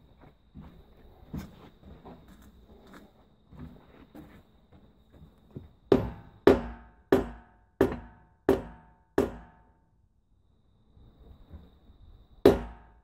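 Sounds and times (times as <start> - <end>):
sledgehammer striking steel wheel: 5.9 - 9.7, 12.5 - 13.0.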